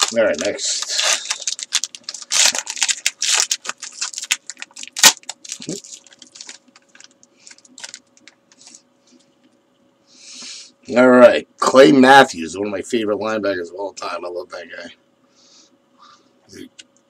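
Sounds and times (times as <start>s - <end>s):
foil wrapper crinkling and tearing: 0.0s - 8.8s.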